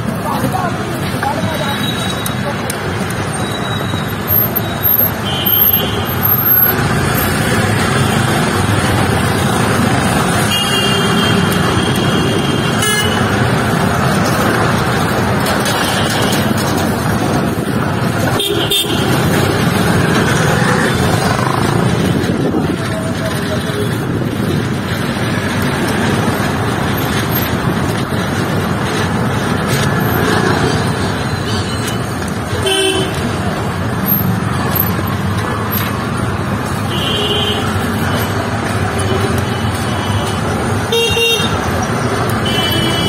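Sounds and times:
traffic rumble and road noise: 0:00.0 - 0:43.0
vehicle horns honking: 0:05.2 - 0:06.4, 0:10.4 - 0:13.3, 0:18.3 - 0:19.4, 0:32.6 - 0:33.3, 0:39.0 - 0:41.6, 0:42.4 - 0:43.0.

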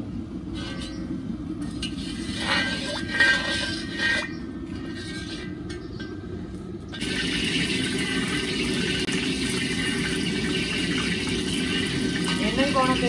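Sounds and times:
gas burner hissing: 0:07.0 - 0:13.0.

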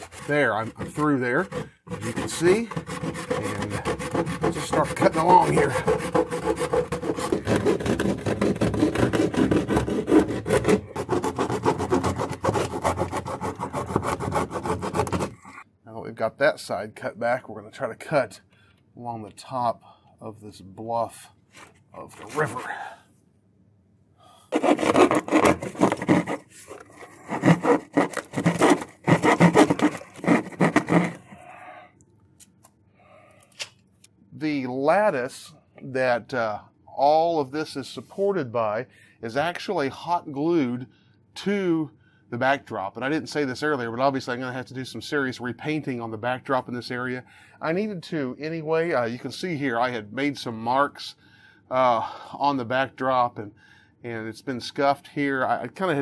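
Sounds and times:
hacksaw blade sawing plaster: 0:00.0 - 0:15.6, 0:22.3 - 0:22.9, 0:24.5 - 0:31.5.

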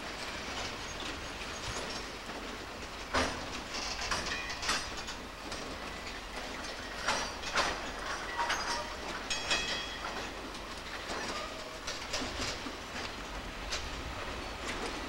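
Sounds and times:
train wheels clacking over rail joints: 0:00.0 - 0:15.0.

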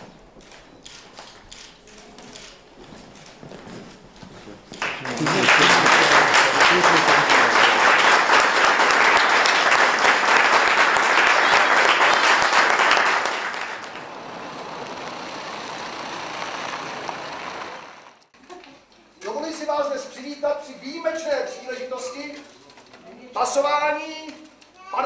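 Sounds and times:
audience applauding: 0:04.7 - 0:18.2.

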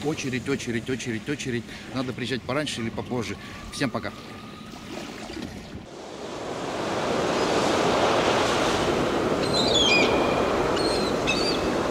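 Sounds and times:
sea surf washing: 0:05.9 - 0:11.9
high bird chirps: 0:09.4 - 0:11.7.

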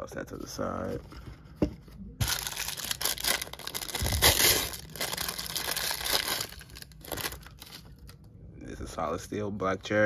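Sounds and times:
paper crinkling and tearing: 0:02.2 - 0:07.9.

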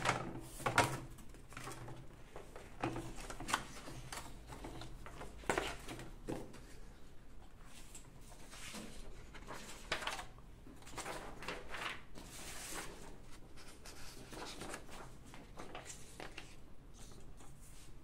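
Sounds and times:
paper rustling and sliding: 0:07.6 - 0:18.0.

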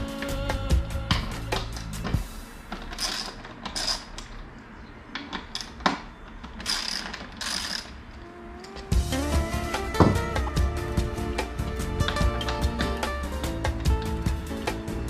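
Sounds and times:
background music: 0:00.0 - 0:02.5, 0:08.1 - 0:15.0
hand ratchet clicking: 0:01.1 - 0:04.3, 0:06.5 - 0:08.0.

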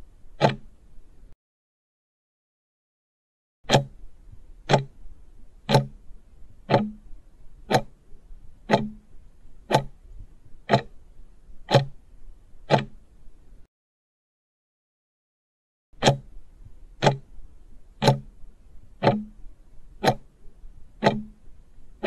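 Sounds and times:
clock ticking: 0:00.3 - 0:00.8, 0:03.7 - 0:06.1, 0:06.7 - 0:07.1, 0:07.7 - 0:10.0, 0:10.7 - 0:11.0, 0:11.6 - 0:12.0, 0:12.7 - 0:13.1, 0:16.0 - 0:17.3, 0:17.9 - 0:18.4, 0:19.0 - 0:19.4, 0:20.0 - 0:20.4, 0:21.0 - 0:22.0.

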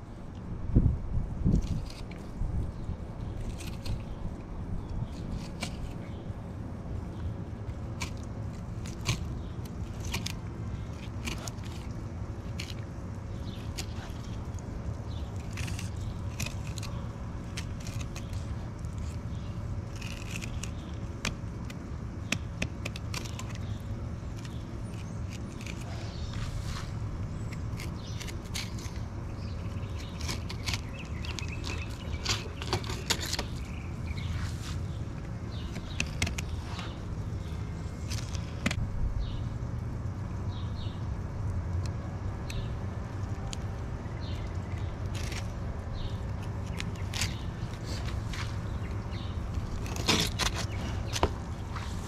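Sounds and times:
steady low rumble: 0:00.0 - 0:52.0
knife scraping along fish bones: 0:07.9 - 0:14.6, 0:15.2 - 0:33.7, 0:49.4 - 0:52.0.

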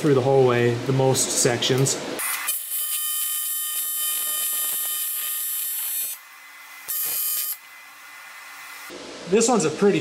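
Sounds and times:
welding arc buzzing: 0:02.2 - 0:08.9.

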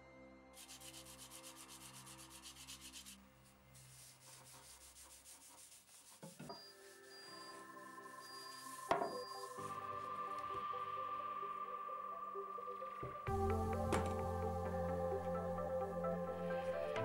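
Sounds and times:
faint background music: 0:00.0 - 0:05.9, 0:06.5 - 0:17.0
rhythmic rubbing strokes on axe: 0:03.9 - 0:09.6.

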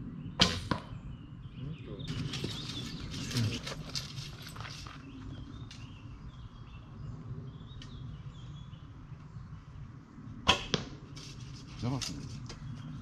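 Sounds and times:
arrow striking foam target: 0:00.4 - 0:00.9, 0:10.4 - 0:10.9.

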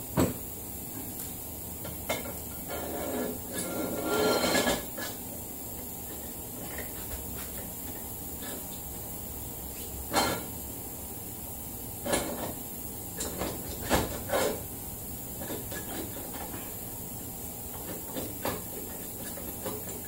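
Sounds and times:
metal clunks and scrapes: 0:02.1 - 0:05.2, 0:10.1 - 0:10.5, 0:12.0 - 0:12.6, 0:13.2 - 0:14.7, 0:15.4 - 0:16.8.

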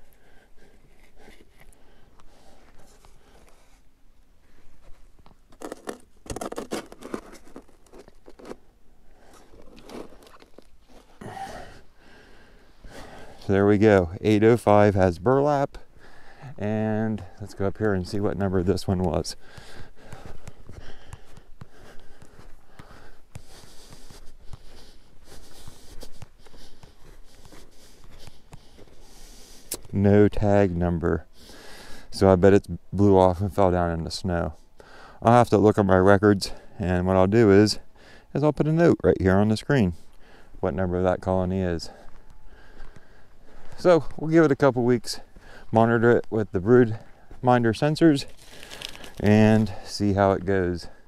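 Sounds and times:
footsteps crunching in snow: 0:04.4 - 0:14.7, 0:17.1 - 0:30.0, 0:41.9 - 0:51.0.

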